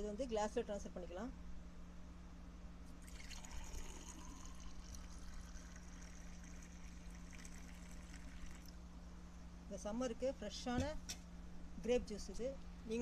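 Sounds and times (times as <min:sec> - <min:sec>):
juice pouring into a glass mug: 0:03.0 - 0:08.8.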